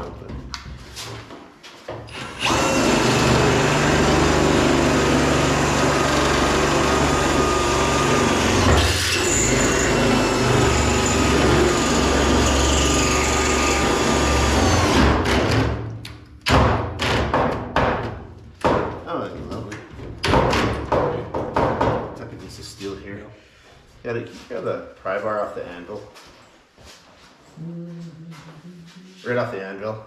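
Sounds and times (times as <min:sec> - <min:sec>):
power drill boring with faint whine: 0:02.1 - 0:03.7, 0:05.4 - 0:10.0.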